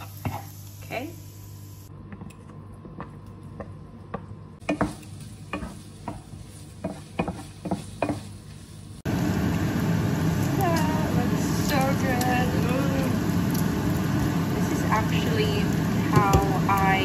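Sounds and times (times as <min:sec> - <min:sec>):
faint sizzling: 0:00.0 - 0:02.5, 0:03.3 - 0:17.0
wooden spoon scraping a pan: 0:04.6 - 0:09.0.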